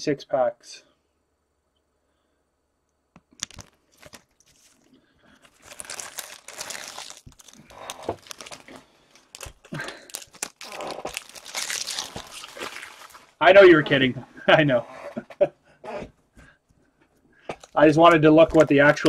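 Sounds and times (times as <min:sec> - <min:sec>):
foil wrapper crinkling: 0:03.3 - 0:13.4.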